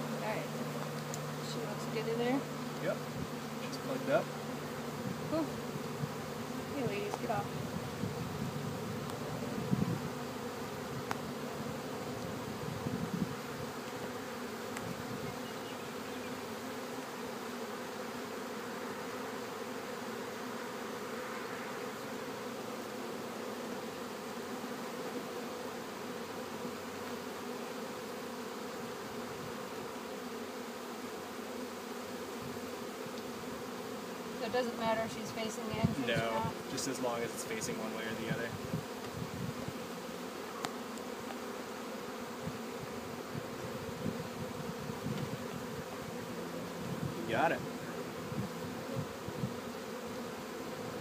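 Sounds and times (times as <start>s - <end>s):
honeybees buzzing: 0.0s - 51.0s.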